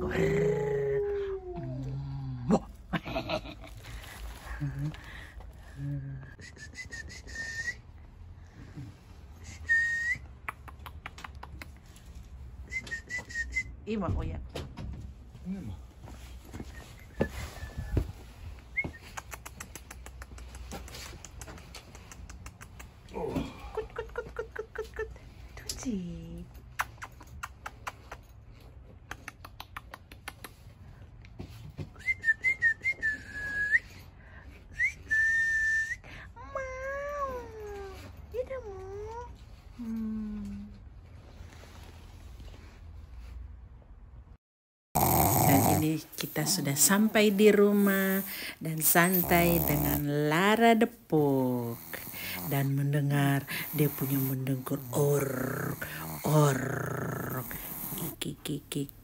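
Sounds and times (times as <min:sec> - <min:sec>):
person whistling: 0:06.4 - 0:07.8, 0:09.4 - 0:10.3, 0:12.6 - 0:13.7, 0:18.7 - 0:19.1, 0:32.0 - 0:34.0, 0:34.8 - 0:36.1
person whistling short high notes: 0:06.4 - 0:07.8.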